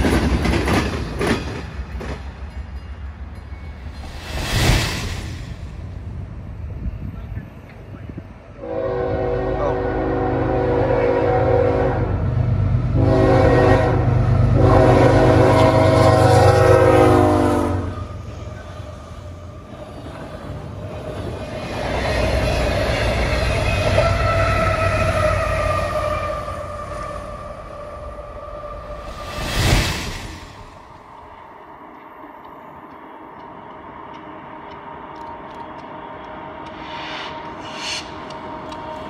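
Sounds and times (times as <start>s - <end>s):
train wheels on rails: 0.0s - 9.4s, 12.1s - 39.0s
locomotive air horn blasts: 8.6s - 12.2s, 13.0s - 18.0s.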